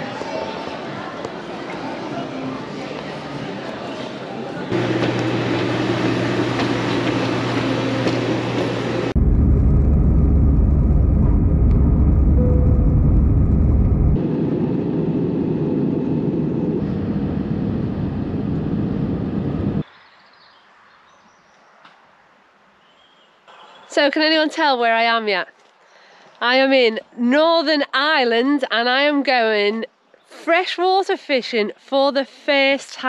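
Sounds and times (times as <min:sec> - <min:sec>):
vehicle engine rumble: 0:04.7 - 0:19.8
quiet outdoor background: 0:19.8 - 0:33.0.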